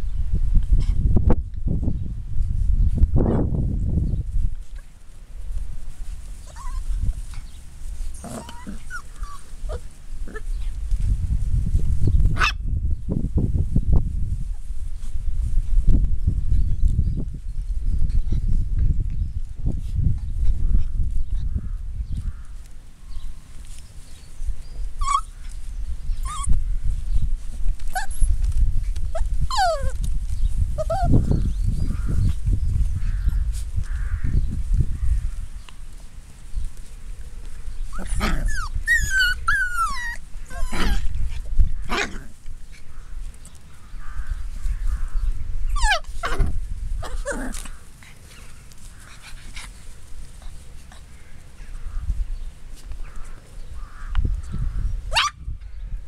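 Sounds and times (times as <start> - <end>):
puppies whimpering: 6.4 - 10.6, 24.8 - 25.6, 26.2 - 26.6, 27.8 - 30.0, 30.8 - 31.4, 37.8 - 41.2, 45.7 - 46.5.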